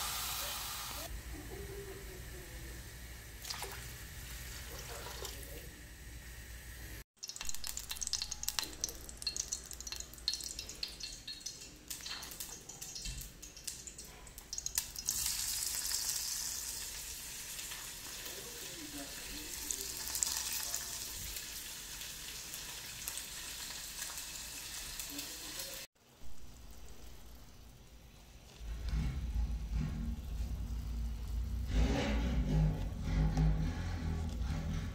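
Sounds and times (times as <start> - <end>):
food sizzling in a pan: 0.0 - 28.6
water pouring into pan: 3.4 - 5.6
utensil scraping a pan: 28.6 - 34.9.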